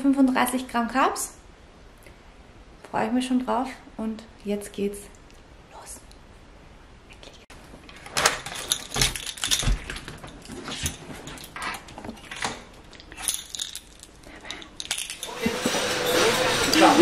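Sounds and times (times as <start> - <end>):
keys jangling: 8.4 - 11.6, 12.3 - 15.5.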